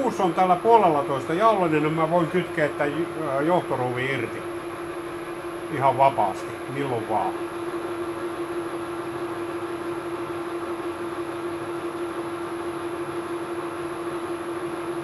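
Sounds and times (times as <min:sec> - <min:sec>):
metal lathe whining: 0:00.0 - 0:10.8.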